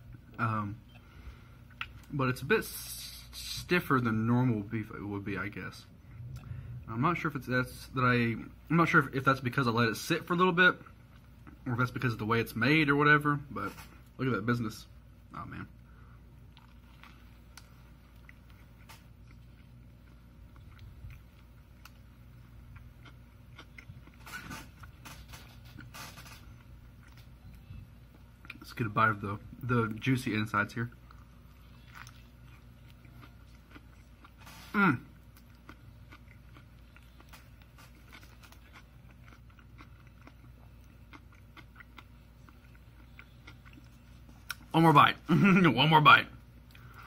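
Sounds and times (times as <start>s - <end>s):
person chewing: 0.0s - 2.2s, 15.8s - 28.7s, 30.9s - 44.8s, 46.4s - 47.0s
low room hum: 0.0s - 47.0s.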